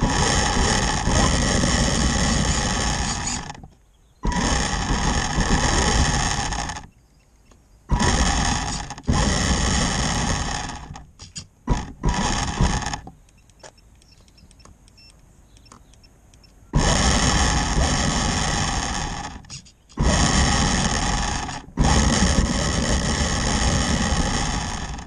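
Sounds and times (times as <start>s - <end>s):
electric motor and gears whining: 0.0s - 7.0s, 7.9s - 14.6s, 16.7s - 25.0s
faint ticks: 13.2s - 16.6s.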